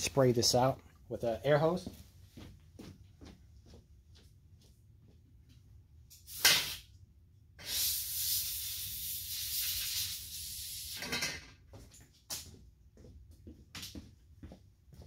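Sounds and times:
compressed air blow gun hissing: 7.6s - 11.0s.

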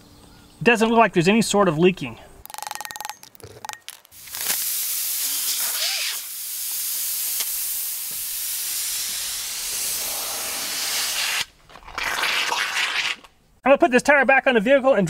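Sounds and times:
air hissing from a tire: 4.4s - 11.5s.

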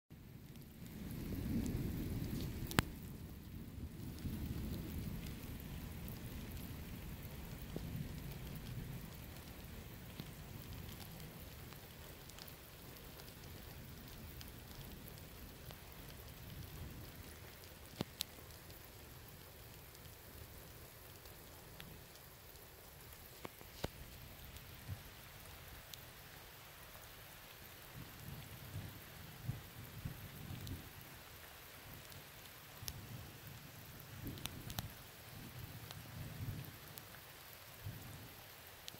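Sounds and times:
steady rain: 0.1s - 38.9s
distant thunder rumble: 0.5s - 11.0s.

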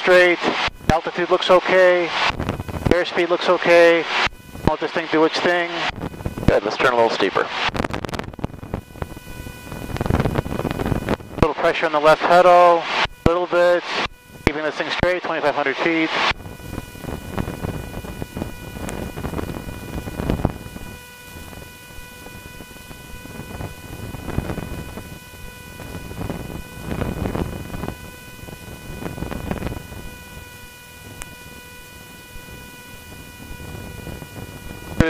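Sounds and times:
aircraft engine and wind noise: 0.0s - 35.0s
electrical whine: 0.0s - 35.0s.

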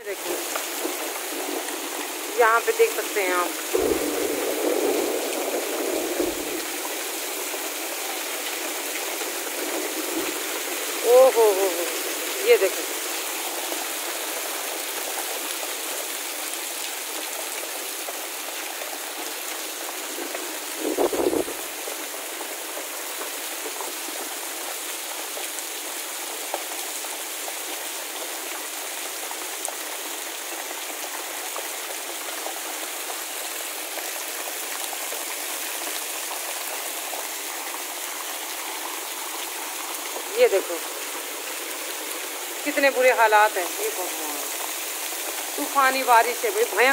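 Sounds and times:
heavy rain hissing: 0.0s - 46.9s
runoff splashing onto mud: 3.5s - 23.4s
low thump: 3.7s - 4.6s.

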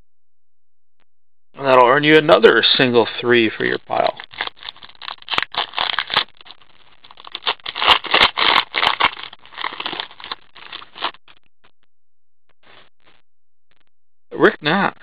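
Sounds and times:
cards scraping: 3.9s - 6.4s, 7.1s - 11.2s
foil wrapper tearing and crinkling: 3.9s - 11.2s.

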